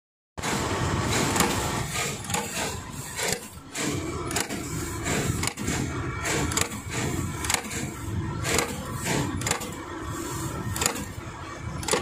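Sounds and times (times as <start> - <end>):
crimping press ram striking: 0.4 - 9.8, 10.6 - 12.0
steady machine noise: 0.4 - 12.0.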